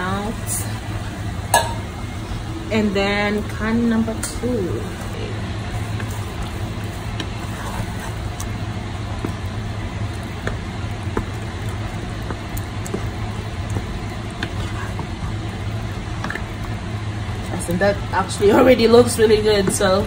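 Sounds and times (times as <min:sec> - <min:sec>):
low hum and hiss: 0:00.0 - 0:20.0
wooden spoon stirring beans: 0:04.3 - 0:17.6.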